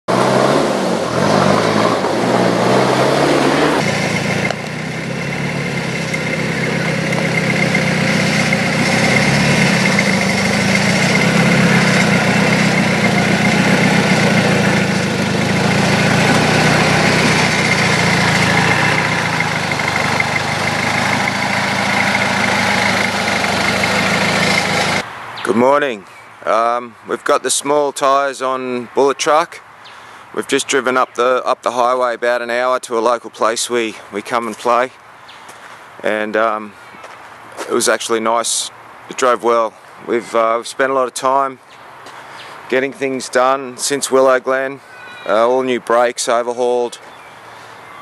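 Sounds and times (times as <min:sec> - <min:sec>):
diesel engine running at low revs: 0:00.1 - 0:25.0.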